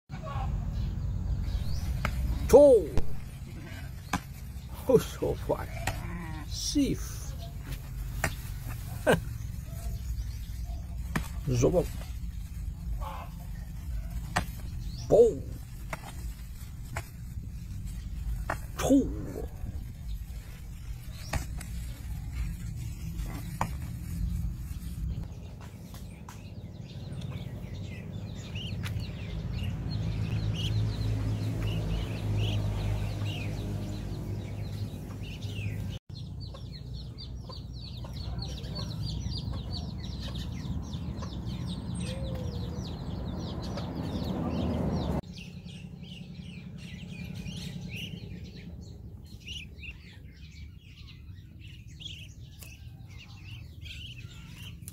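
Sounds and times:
ducklings peeping: 0.2s - 54.9s
steady low rumble: 7.5s - 30.8s.

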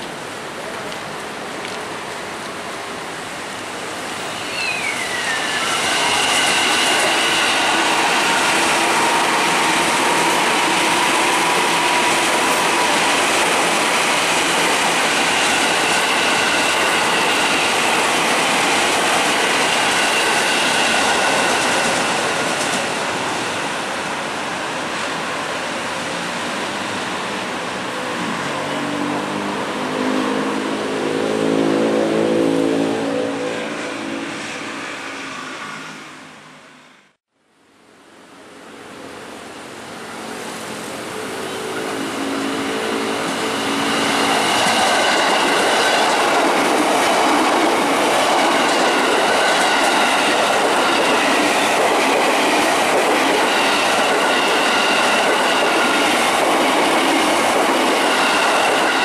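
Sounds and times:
electric train passing: 0.0s - 37.1s, 38.0s - 59.0s
high whining tones: 4.0s - 13.2s
high tone sliding down: 4.1s - 11.8s.

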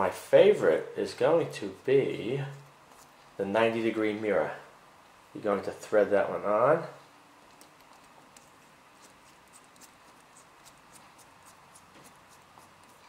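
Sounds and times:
small ticks and scrapes: 7.4s - 13.0s.

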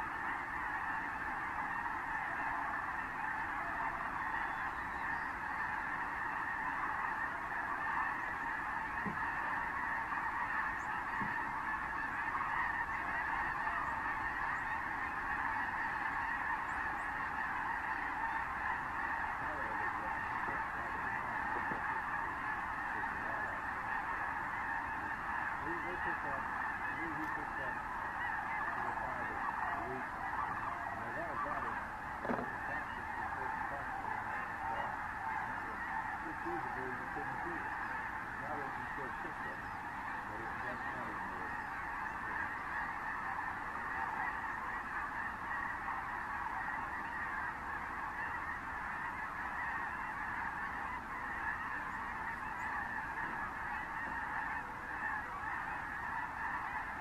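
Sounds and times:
flock of geese honking: 0.0s - 57.0s.

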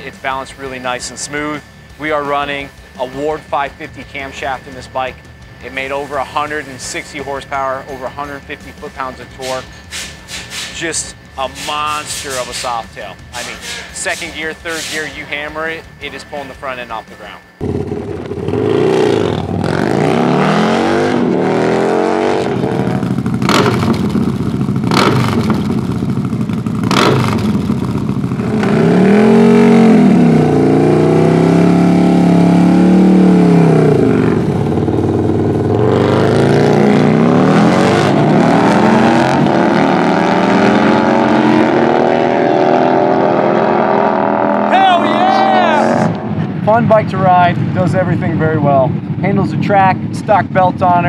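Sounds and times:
motorcycle engine revving: 17.6s - 47.0s
exhaust cracks: 17.6s - 51.0s.

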